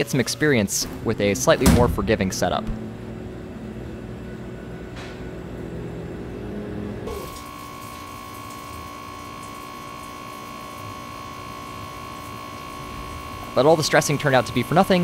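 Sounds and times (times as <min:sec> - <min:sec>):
mill spindle whine: 0:00.0 - 0:15.0
low hum: 0:00.8 - 0:07.2.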